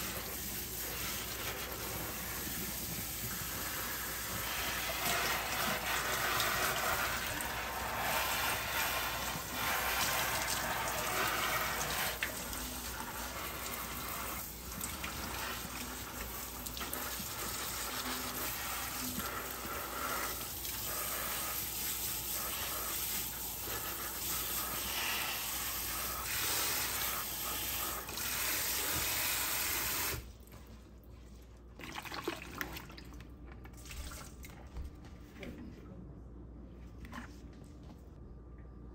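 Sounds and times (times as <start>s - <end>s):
spray head water running: 0.0s - 30.3s.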